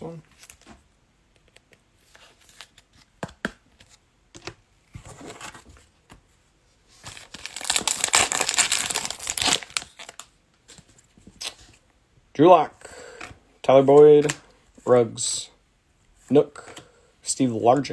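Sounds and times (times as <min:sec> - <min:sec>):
foil wrapper tearing and crinkling: 0:07.1 - 0:10.3.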